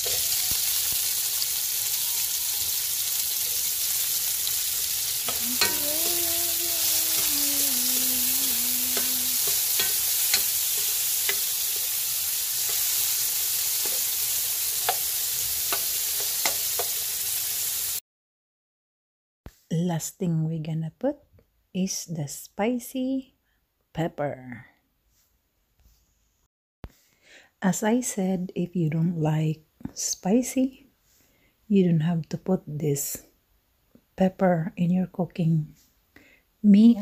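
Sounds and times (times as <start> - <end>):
vegetables sizzling in oil: 0.0 - 18.0
spoon clicking against a pan: 8.9 - 11.5, 14.8 - 15.1, 15.7 - 17.0.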